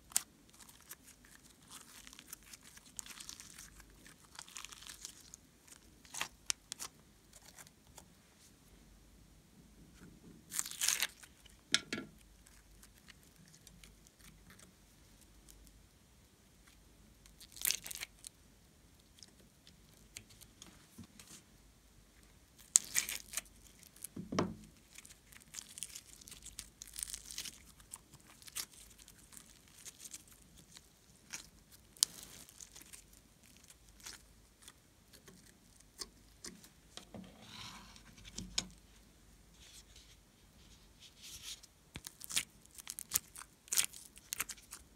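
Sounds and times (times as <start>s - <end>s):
foam clay crackling and crunching: 0.0s - 8.1s, 10.5s - 11.6s, 16.7s - 18.4s, 22.6s - 36.6s, 41.0s - 44.9s.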